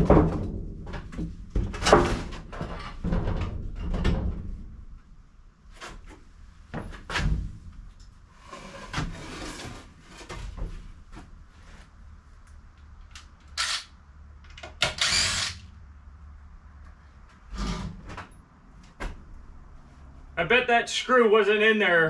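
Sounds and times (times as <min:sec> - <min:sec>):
power drill whirring: 0:13.6 - 0:13.9, 0:14.8 - 0:15.6.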